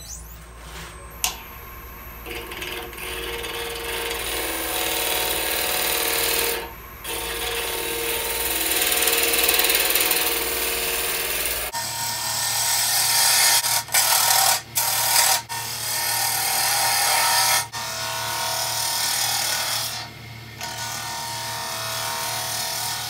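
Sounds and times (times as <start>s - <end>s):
wood lathe hum: 2.2s - 23.0s
gouge scraping spinning wood: 2.3s - 11.7s.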